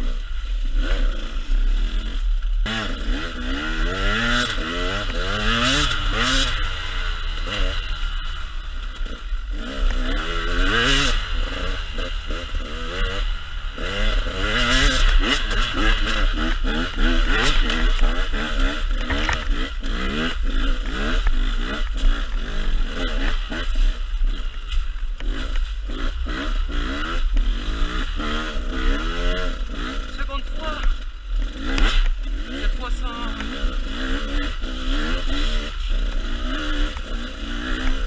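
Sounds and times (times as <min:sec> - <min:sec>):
dirt bike engine revving: 0:00.0 - 0:38.0.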